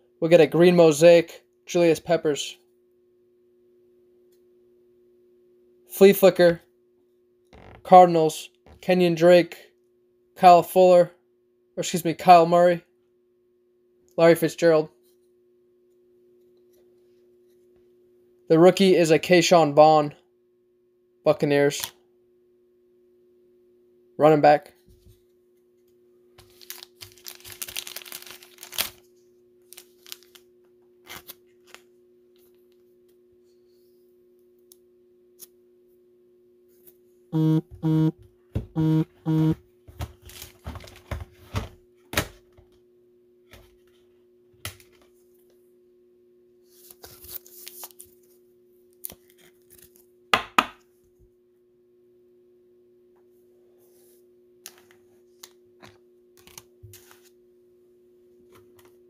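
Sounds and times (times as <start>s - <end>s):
faint electrical hum: 0.0s - 59.0s
plastic sleeves crinkling: 26.4s - 32.5s, 40.0s - 41.2s, 46.8s - 48.3s
short loud buzzes: 37.4s - 38.1s, 38.8s - 39.6s.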